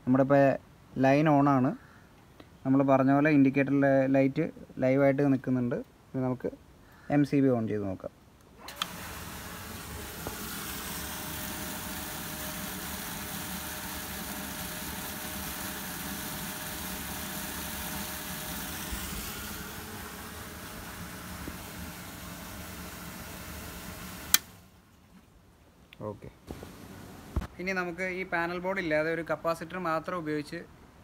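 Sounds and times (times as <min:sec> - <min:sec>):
circuit breaker click: 0:08.6 - 0:09.0, 0:24.3 - 0:24.5
pump humming: 0:08.6 - 0:24.8, 0:26.5 - 0:27.5
water gushing into plastic drum: 0:08.7 - 0:24.3.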